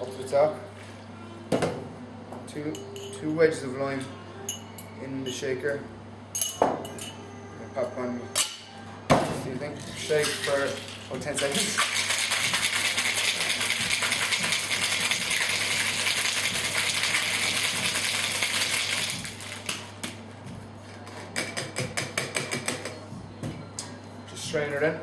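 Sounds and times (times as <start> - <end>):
ice rattling in cocktail shaker: 10.2 - 19.7.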